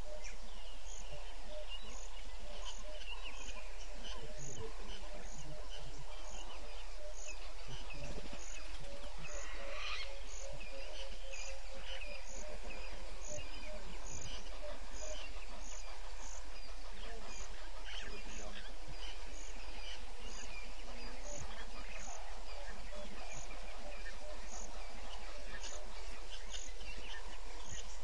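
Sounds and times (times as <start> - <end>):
bird chirps: 0.0 - 28.0
faint low hum: 0.0 - 28.0
insects: 0.0 - 28.0.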